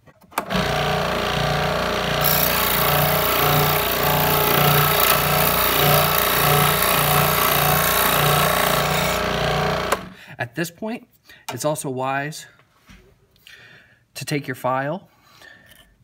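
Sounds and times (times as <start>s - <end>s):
scroll saw cutting plastic: 0.4s - 10.2s.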